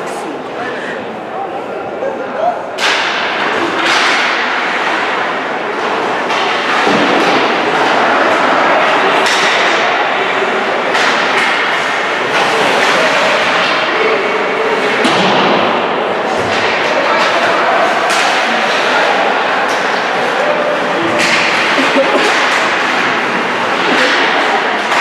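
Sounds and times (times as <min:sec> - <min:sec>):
crowd noise: 0:00.0 - 0:25.0
skating: 0:02.4 - 0:25.0
stick hitting puck: 0:05.8 - 0:09.9, 0:15.0 - 0:20.3, 0:21.1 - 0:25.0.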